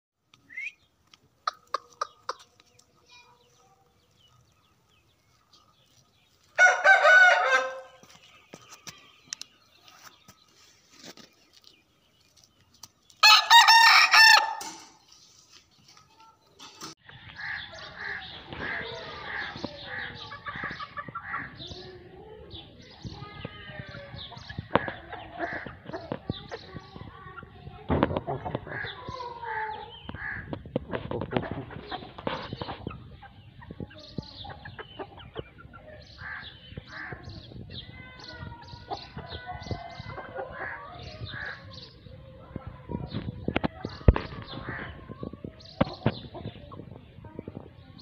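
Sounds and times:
busy background sound: 0.3s - 48.0s
rooster crowing: 6.6s - 7.9s.

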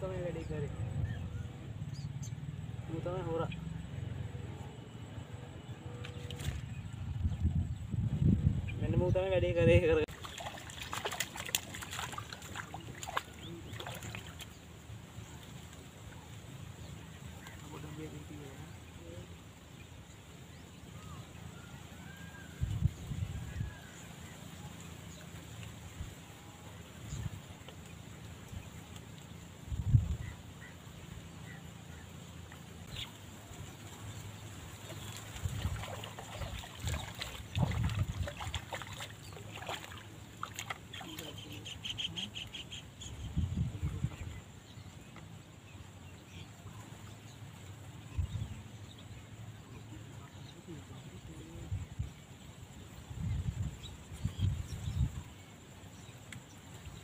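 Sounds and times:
fish splashing in water: 10.1s - 14.8s, 34.0s - 42.2s.

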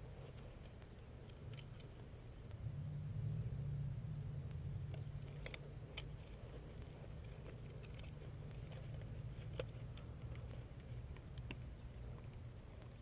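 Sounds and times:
low steady rumble: 0.0s - 13.0s
light clicks and taps: 4.5s - 13.0s.

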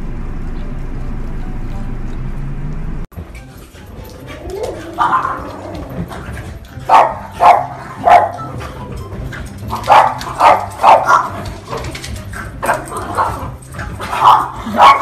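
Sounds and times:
puppies yapping: 3.4s - 15.0s.

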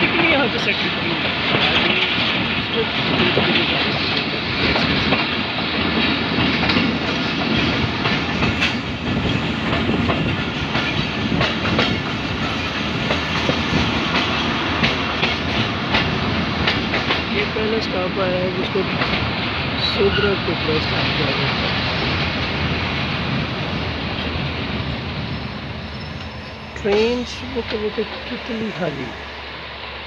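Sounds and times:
wheels clicking over rail joints: 0.0s - 17.6s
train rumbling along track: 0.0s - 30.0s.

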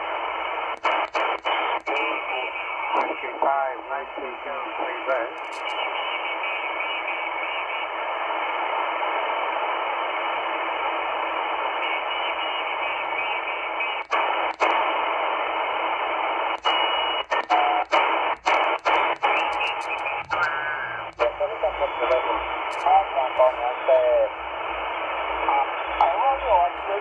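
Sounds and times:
shortwave radio static: 0.0s - 27.0s
short radio whistles: 16.6s - 21.3s.

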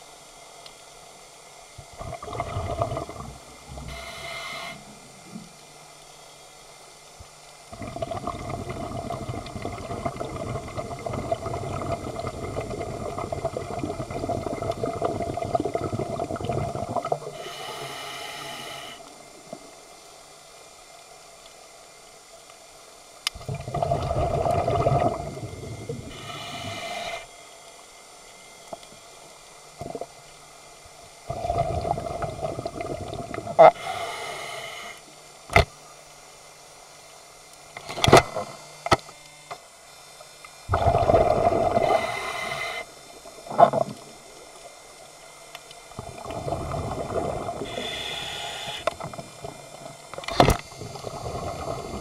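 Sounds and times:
bubbling exhalations: 1.9s - 4.0s, 7.7s - 17.4s, 23.5s - 26.6s, 31.3s - 33.8s, 40.7s - 42.6s, 46.0s - 48.7s, 50.8s - 52.0s
regulator hissing inhalations: 3.7s - 5.1s, 17.3s - 19.1s, 26.0s - 27.3s, 33.6s - 35.1s, 41.7s - 43.0s, 47.6s - 49.1s.

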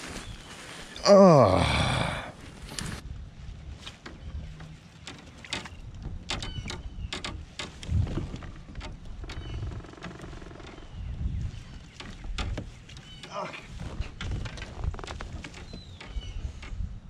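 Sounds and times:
clicks and knocks of gear: 3.8s - 10.8s, 11.7s - 16.8s
wind buffeting microphone: 5.6s - 9.8s, 10.7s - 17.0s.

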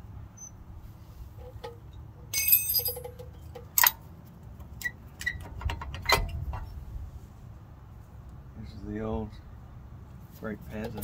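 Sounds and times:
metal brake parts clinking: 1.4s - 4.0s
ringing metallic clatter: 1.4s - 4.0s.

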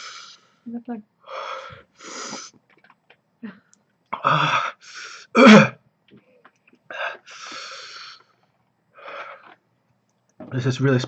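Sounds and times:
man coughing and clearing throat: 5.3s - 5.8s.

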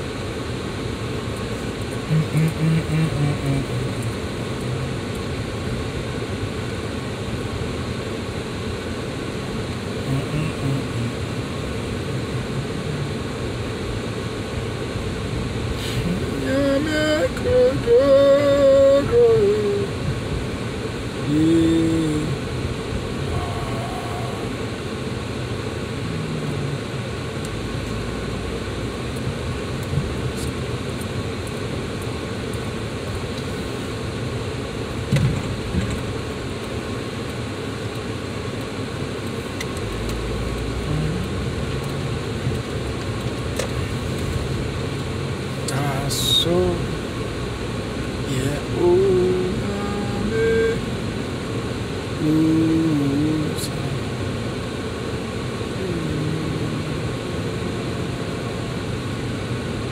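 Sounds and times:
car road and engine noise: 0.0s - 59.9s
person humming: 2.0s - 4.1s, 10.0s - 11.4s, 12.5s - 13.2s, 15.8s - 20.0s, 21.2s - 22.4s, 23.2s - 24.7s, 26.0s - 27.0s, 40.7s - 42.3s, 48.3s - 50.8s, 52.2s - 54.0s, 55.7s - 58.5s.

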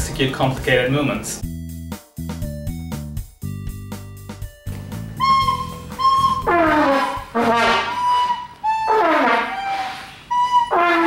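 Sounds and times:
higher thinner notes: 4.7s - 11.0s
trumpet notes sliding downward: 5.2s - 11.0s.

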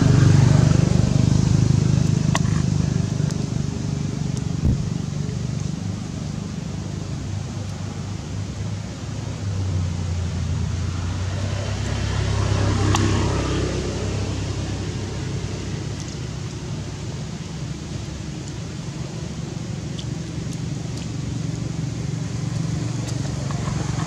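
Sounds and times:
vehicle engine rumbling: 0.0s - 24.0s
short thump: 4.6s - 4.9s.

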